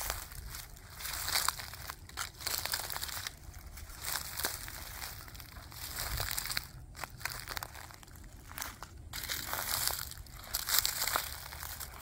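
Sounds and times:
footsteps on dry leaves: 0:00.0 - 0:12.0.

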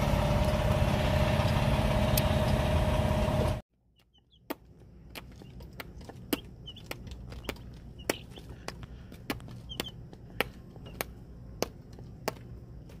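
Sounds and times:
chicks pecking taps: 0:04.0 - 0:12.4
faint high chick peeps: 0:09.6 - 0:10.0.

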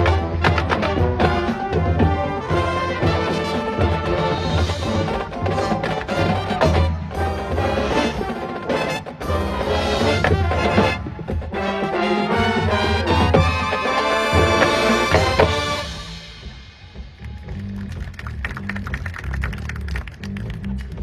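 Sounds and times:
brass horns holding chords: 0:00.0 - 0:16.3
marching percussion: 0:00.0 - 0:21.0.

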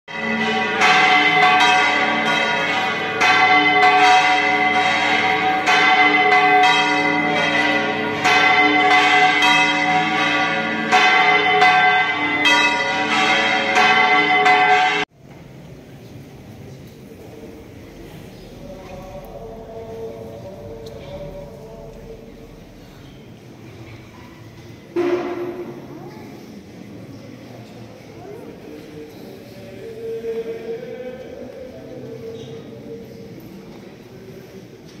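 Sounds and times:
church bells ringing: 0:00.1 - 0:15.1.

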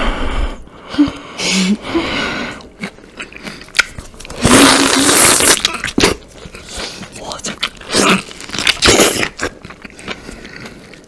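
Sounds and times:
wet juicy bites: 0:02.6 - 0:04.7, 0:05.4 - 0:11.0
loud slurp: 0:04.4 - 0:07.0.

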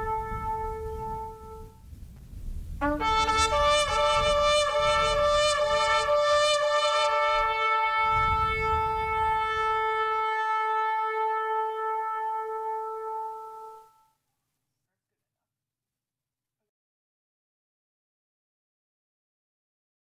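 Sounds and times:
loud horn blasts: 0:00.0 - 0:01.8, 0:02.8 - 0:14.0.

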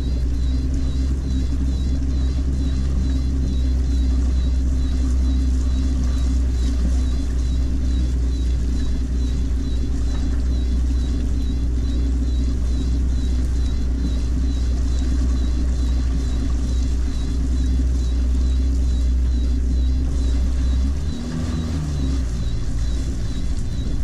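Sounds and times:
boat engine running: 0:00.0 - 0:24.0.

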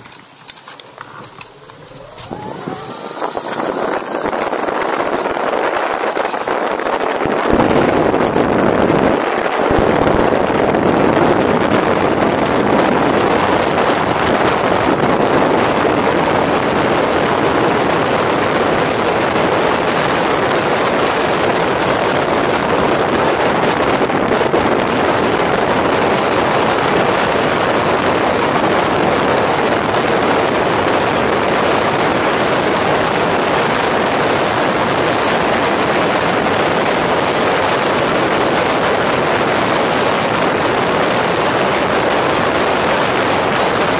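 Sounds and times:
tyres roaring on gravel: 0:00.0 - 0:27.9
wind noise: 0:00.0 - 0:43.9.

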